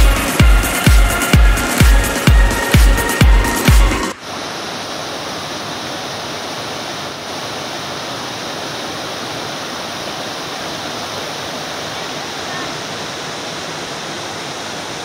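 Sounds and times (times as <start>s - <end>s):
beat-driven music: 0.0s - 4.2s
river rapids rushing over boulders: 0.2s - 15.0s.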